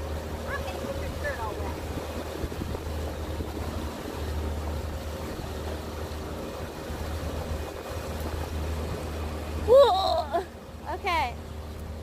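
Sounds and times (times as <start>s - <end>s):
motorboat motor drone: 0.0s - 12.0s.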